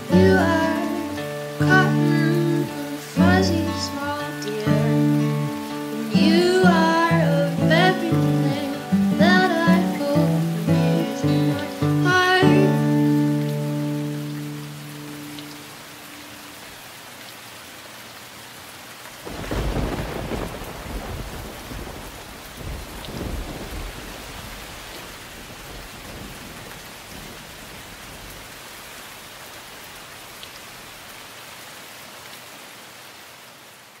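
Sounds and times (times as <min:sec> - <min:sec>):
steady rain: 0:00.0 - 0:34.0
thunder rumbling: 0:19.3 - 0:28.5.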